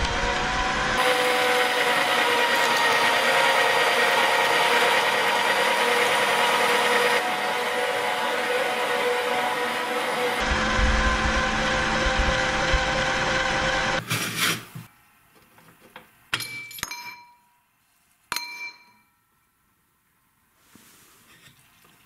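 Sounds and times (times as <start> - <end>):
meat grinder motor grinding ice: 0.0 - 14.0.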